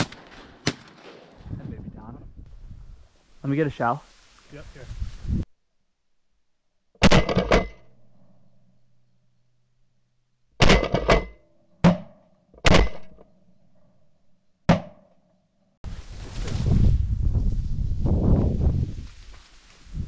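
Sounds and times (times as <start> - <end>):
shotgun shots: 0.0 - 1.4, 7.0 - 7.8, 10.6 - 13.1.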